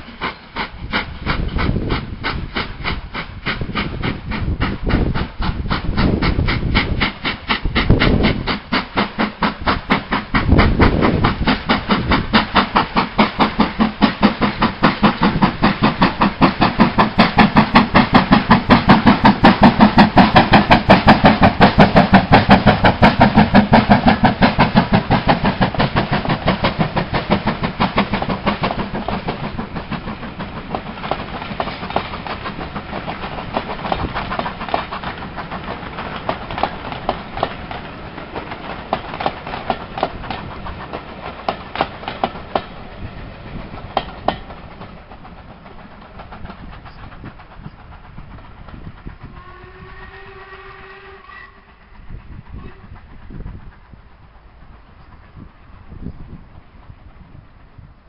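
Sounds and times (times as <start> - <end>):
steam locomotive exhaust beating: 0.0 - 58.0
locomotive whistle: 49.2 - 53.0.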